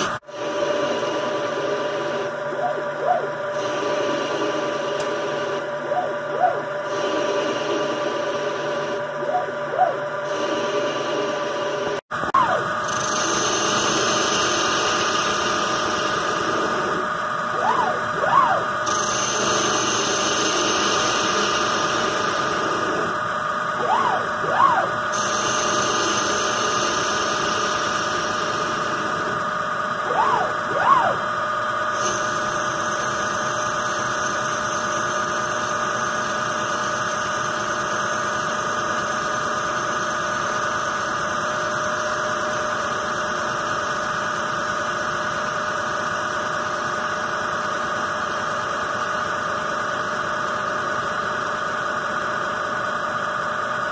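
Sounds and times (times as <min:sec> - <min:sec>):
lathe spindle running: 0:00.0 - 0:42.5
motors whining up and down: 0:00.0 - 0:43.1.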